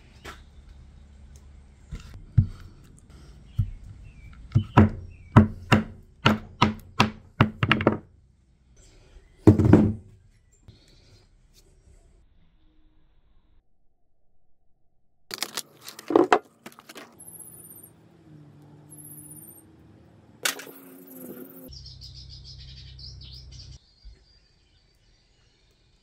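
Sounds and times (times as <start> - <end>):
hammer striking nail into wood: 4.5 - 8.0.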